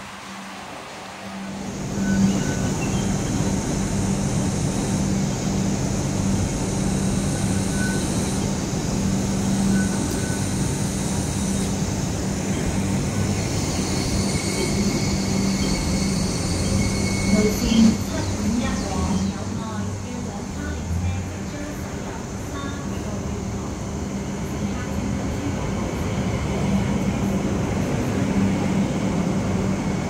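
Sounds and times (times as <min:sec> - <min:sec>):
light rail vehicle running noise: 0:00.0 - 0:30.0
wheel squeal: 0:07.4 - 0:08.5, 0:09.4 - 0:10.6, 0:13.4 - 0:19.3.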